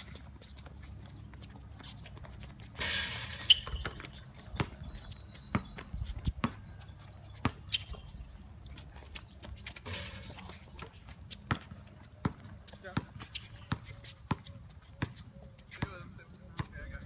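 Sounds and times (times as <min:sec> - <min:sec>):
basketball bouncing on court: 0:03.3 - 0:06.7, 0:07.4 - 0:08.0, 0:09.8 - 0:16.9.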